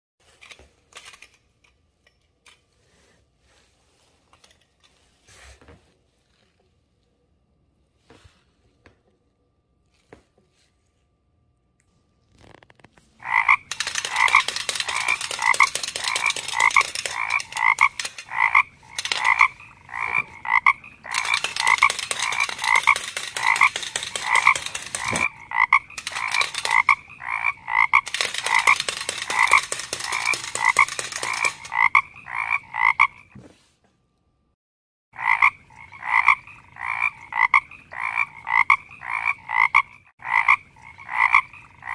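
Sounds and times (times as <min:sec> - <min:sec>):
frog-like croak: 0:13.2 - 0:33.3, 0:35.2 - 0:41.9
wind-up toys clicking clatter: 0:13.6 - 0:19.7, 0:21.1 - 0:27.0, 0:28.0 - 0:32.0.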